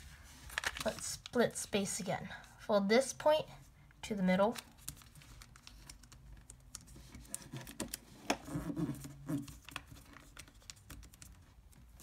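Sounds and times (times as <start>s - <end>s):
paper being folded and creased: 0.0s - 1.4s, 4.6s - 12.0s.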